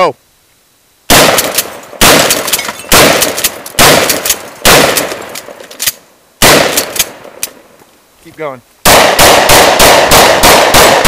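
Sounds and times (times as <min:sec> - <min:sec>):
pistol shots echoing: 0:01.1 - 0:05.6, 0:06.4 - 0:07.6, 0:08.8 - 0:11.0.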